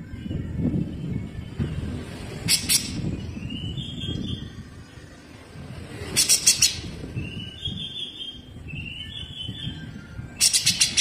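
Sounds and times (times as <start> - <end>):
bird harsh rattling call: 6.2 - 6.8, 10.4 - 11.0
bird whistled notes: 6.2 - 11.0.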